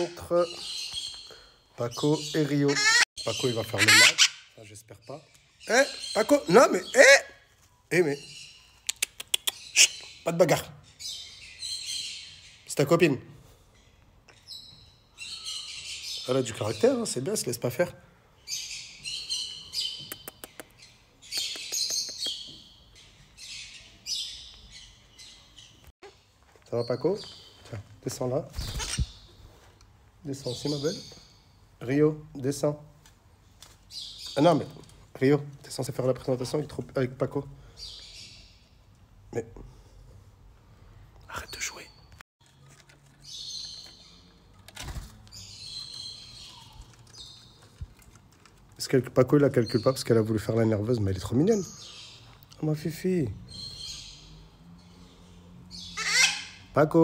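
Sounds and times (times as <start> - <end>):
parrots calling: 0.0 - 4.6, 5.5 - 7.5, 8.2 - 12.6, 28.6 - 29.4, 53.5 - 57.0
macaws squawking: 2.0 - 4.6, 55.7 - 56.8
bird clicks: 8.8 - 9.9, 20.0 - 22.5.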